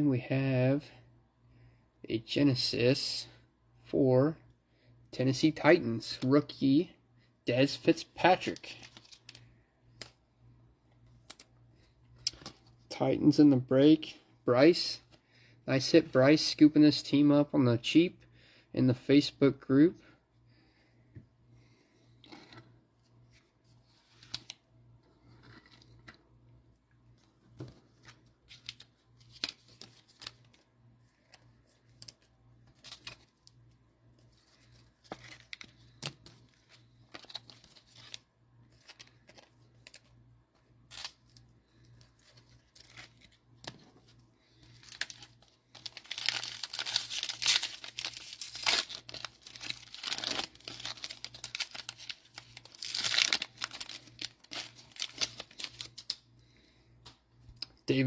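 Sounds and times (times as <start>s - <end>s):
cards clicking and rustling: 12.2s - 12.6s, 34.4s - 41.4s, 44.7s - 56.2s
wrapper tearing and crinkling: 44.7s - 56.2s.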